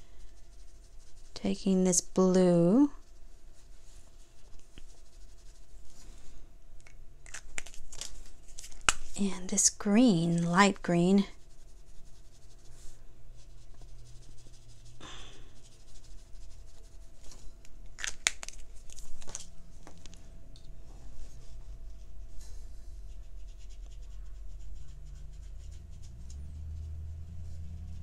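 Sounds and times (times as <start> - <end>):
brush scratching on paper: 0.0 - 6.3, 9.2 - 17.6, 21.0 - 28.0
low steady hum: 0.0 - 28.0.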